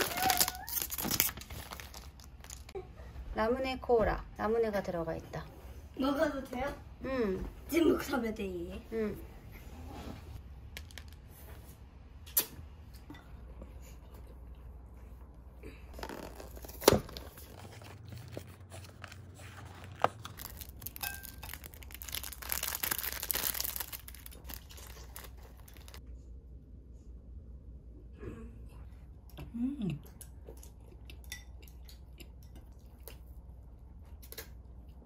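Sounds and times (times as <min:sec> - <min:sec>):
plastic wrapper tearing: 0:00.0 - 0:02.7, 0:16.0 - 0:17.6, 0:19.8 - 0:26.0.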